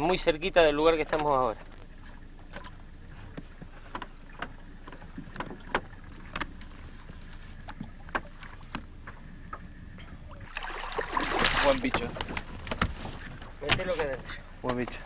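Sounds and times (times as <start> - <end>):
wind: 0.0 - 15.0
light clicks and knocks: 1.0 - 10.2, 11.8 - 15.0
water washing: 10.2 - 14.5.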